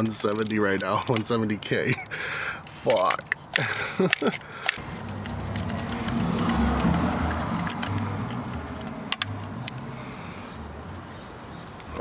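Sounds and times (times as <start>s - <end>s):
passing car rumble: 4.8s - 12.0s.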